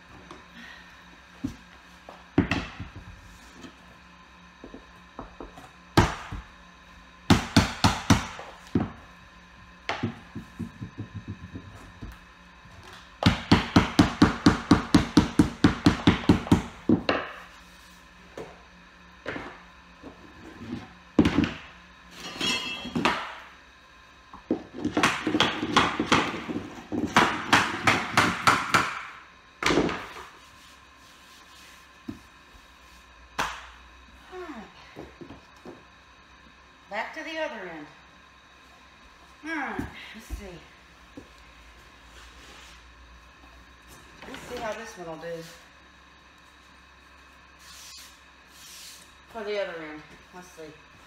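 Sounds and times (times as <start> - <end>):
rubber mallet knocking vinyl planks: 13.2 - 17.4, 24.8 - 30.1.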